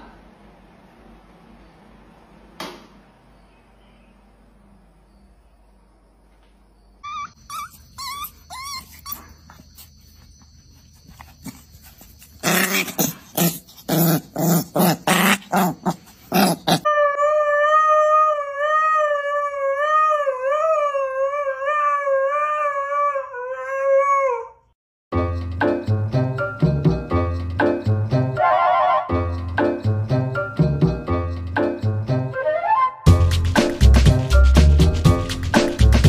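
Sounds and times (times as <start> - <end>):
dog yelping: 7.0 - 18.4
dog growling barks: 12.4 - 16.9
dog howling: 14.1 - 24.6.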